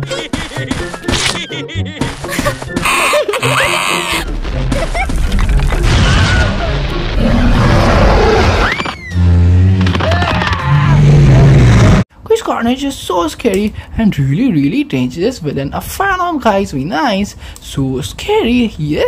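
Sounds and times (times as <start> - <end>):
cartoon background music: 0.0 - 8.1
sliding squeaks and hits: 2.8 - 4.3
loud rumbling crash: 4.4 - 8.7.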